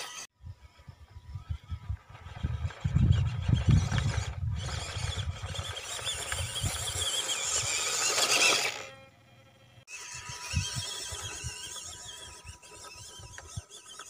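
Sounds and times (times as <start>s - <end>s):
toy truck motor whine: 0.0s - 14.0s.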